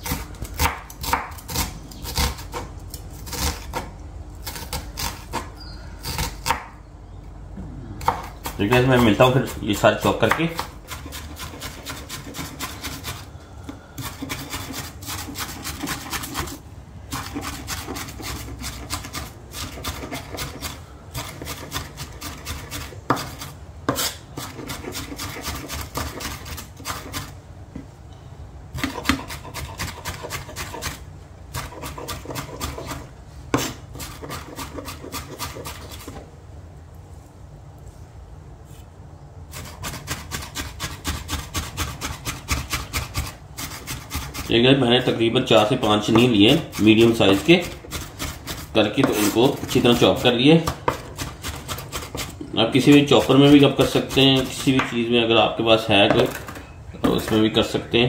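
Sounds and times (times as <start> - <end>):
knife chopping on wooden board: 0.0 - 2.6, 6.1 - 6.8, 8.0 - 13.2, 14.0 - 27.3, 28.8 - 31.0, 31.6 - 36.2, 46.0 - 55.0.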